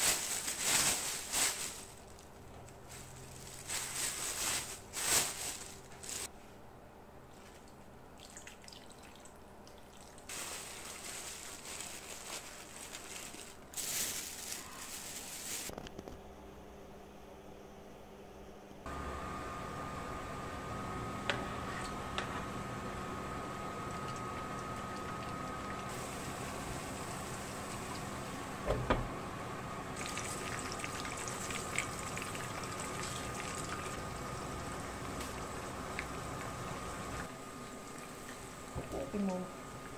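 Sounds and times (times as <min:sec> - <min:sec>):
plastic bag crinkling: 0:00.0 - 0:06.3, 0:10.3 - 0:16.0
liquid pouring into a bag: 0:08.2 - 0:15.7, 0:30.0 - 0:34.4
oil popping and crackling: 0:30.0 - 0:37.3.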